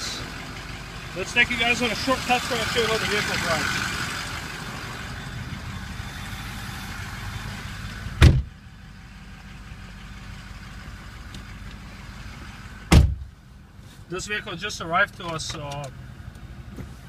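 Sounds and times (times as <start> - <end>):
diesel truck engine idling: 0.0 - 17.0
truck door slamming: 8.2 - 8.6, 12.9 - 13.3.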